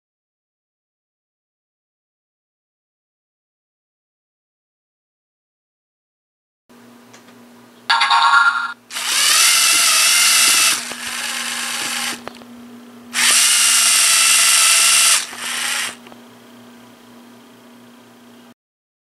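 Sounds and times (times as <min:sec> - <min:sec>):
toy robot motors whining: 0:08.9 - 0:12.3, 0:13.2 - 0:16.0.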